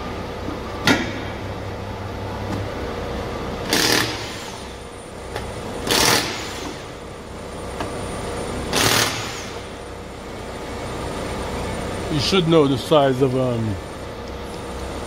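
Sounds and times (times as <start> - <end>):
impact wrench bursts: 3.6 - 4.8, 5.8 - 7.0, 8.7 - 9.7.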